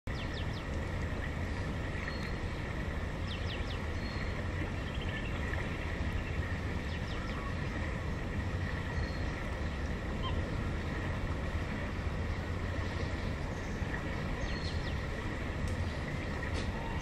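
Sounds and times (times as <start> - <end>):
low outdoor rumble: 0.1 - 17.0
small birds chirping: 13.4 - 15.1.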